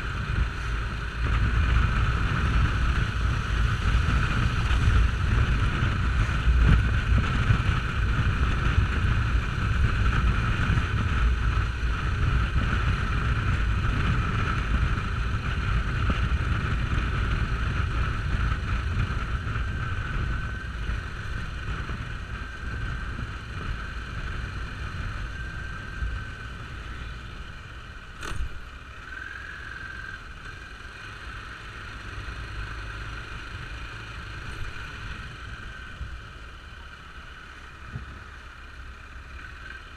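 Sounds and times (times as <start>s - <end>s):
motorcycle engine drone: 0.0s - 39.9s
wind rumble on microphone: 0.0s - 39.9s
sharp click: 28.2s - 28.5s.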